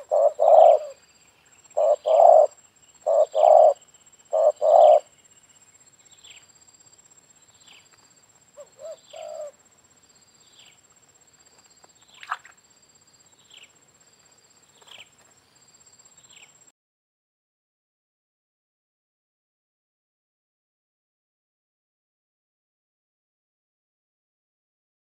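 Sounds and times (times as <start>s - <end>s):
dove cooing softly: 0.0s - 1.0s, 1.7s - 5.2s, 8.6s - 9.6s
high insect drone: 0.0s - 16.7s.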